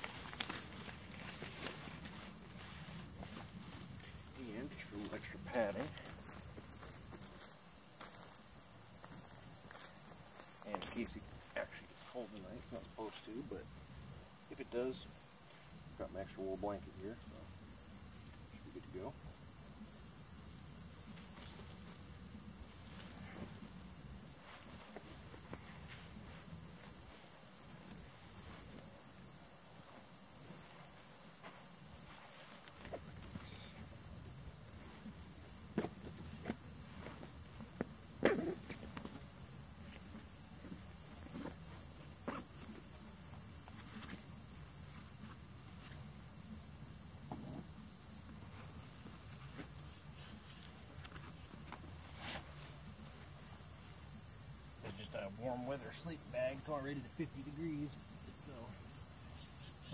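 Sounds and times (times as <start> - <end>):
camping gear rustling: 0.0 - 16.0, 17.6 - 55.1
high-pitched insect chorus: 0.0 - 59.9.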